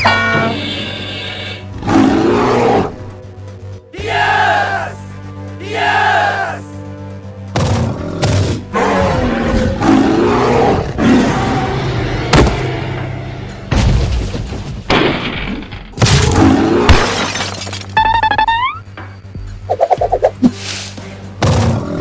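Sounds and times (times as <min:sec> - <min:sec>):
background music: 0:00.0 - 0:22.0
dinosaur roars: 0:01.8 - 0:03.0, 0:07.9 - 0:12.8.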